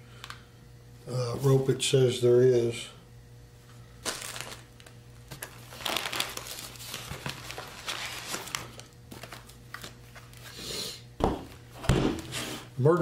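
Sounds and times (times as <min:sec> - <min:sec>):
rustling and crinkling handling: 0:04.0 - 0:10.5.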